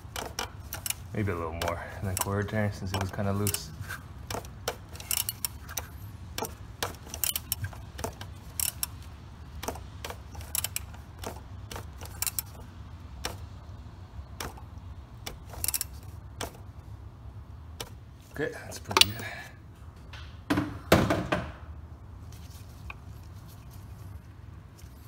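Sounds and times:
ratchet clicking: 0.0 - 12.6, 15.2 - 16.5.

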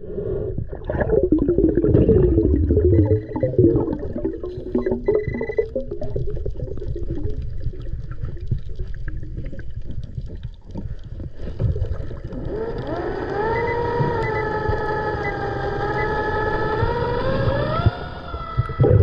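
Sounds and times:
muffled underwater rumble: 0.0 - 19.0
boat motor whine underwater: 0.9 - 6.2, 11.8 - 19.0.

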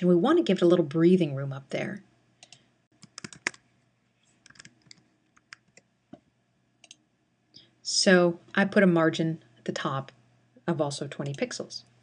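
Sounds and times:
keyboard typing clicks: 2.4 - 3.6, 4.4 - 5.8, 6.8 - 7.0.

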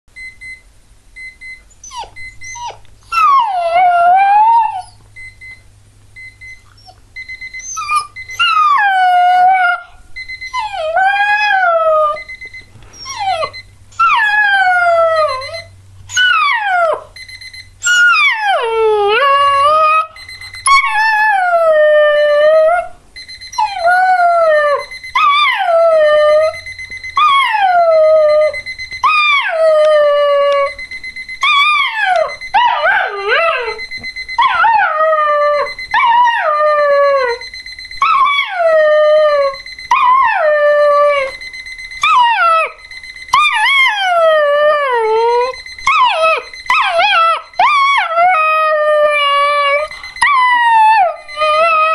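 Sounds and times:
puppy howling: 7.6 - 12.2, 17.8 - 22.9, 43.4 - 51.9.

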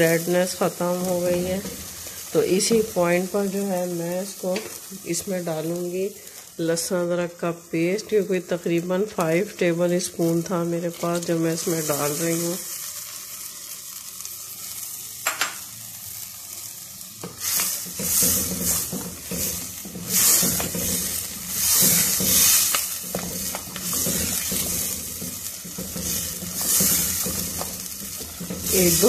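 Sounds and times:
meat frying in a pot: 0.0 - 29.0
wooden spoon scraping: 17.2 - 29.0.

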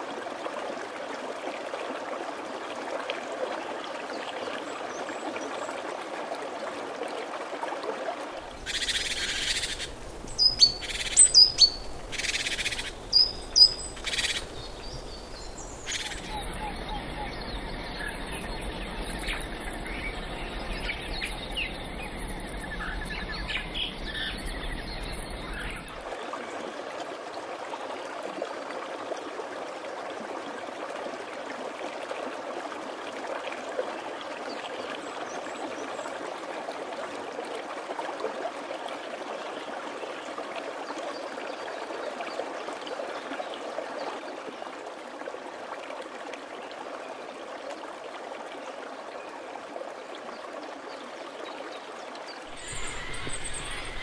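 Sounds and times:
flowing water rushing: 0.0 - 54.0
forest background noise: 0.0 - 54.0
bird chirps: 8.7 - 25.9, 52.5 - 54.0.

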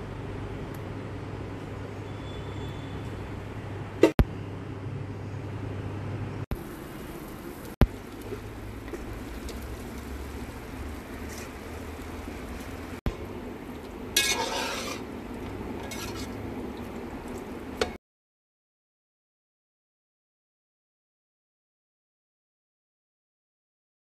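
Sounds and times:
food sizzling in a pot: 6.5 - 13.0, 13.6 - 17.9.

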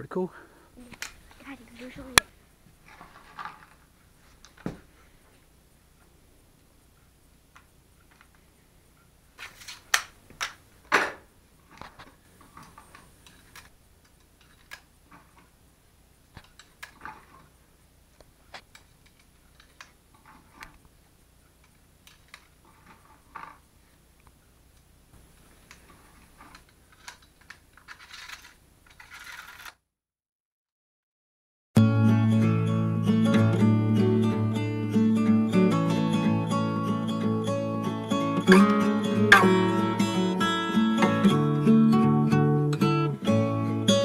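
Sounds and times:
metallic gun clicks and clacks: 26.5 - 29.8.

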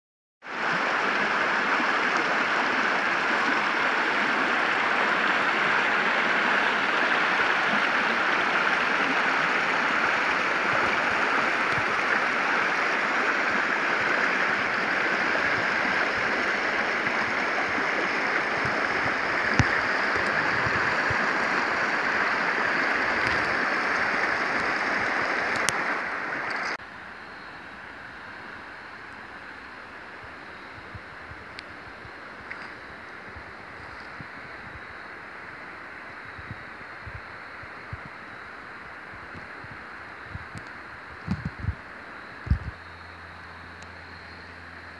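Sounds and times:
creek water babbling over rocks: 0.4 - 44.9.

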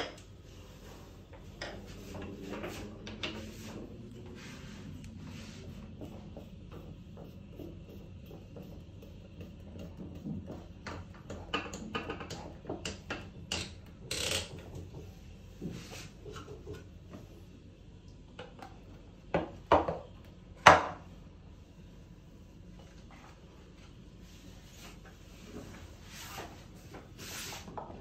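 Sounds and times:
parts clicking and knocking: 6.0 - 15.2.

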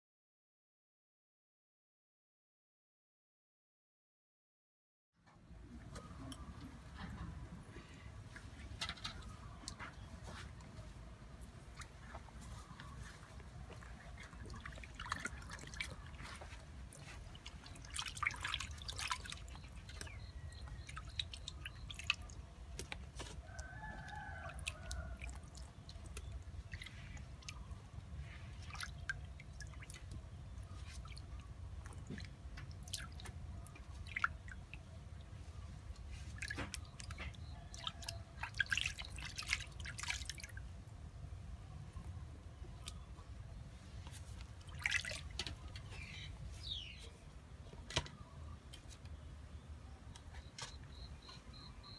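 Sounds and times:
water splashing in metal basin: 14.1 - 27.8, 28.5 - 35.2, 35.9 - 40.7, 44.6 - 45.9.

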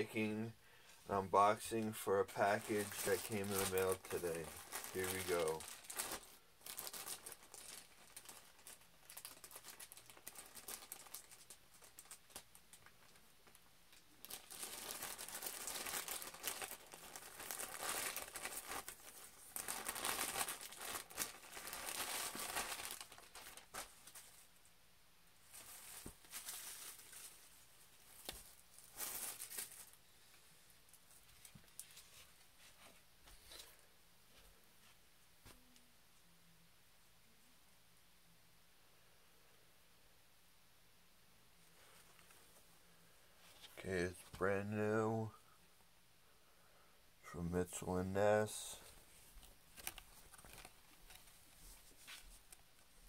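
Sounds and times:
plastic bag crinkling: 1.4 - 13.6, 14.2 - 24.4, 25.5 - 30.0, 48.4 - 52.6.

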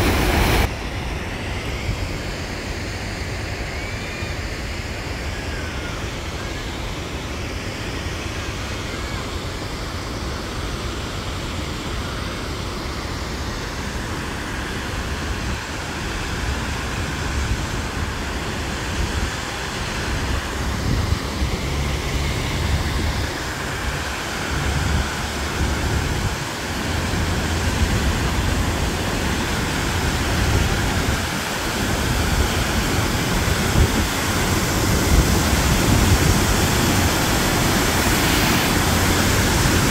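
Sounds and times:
waterfall rushing down rocks: 0.0 - 39.9
wind rumbling on microphone: 14.6 - 39.9.

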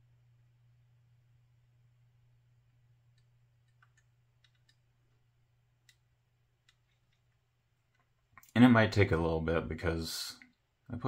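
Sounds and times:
faint low hum: 0.0 - 11.0
faint plastic clicks: 2.7 - 5.2.

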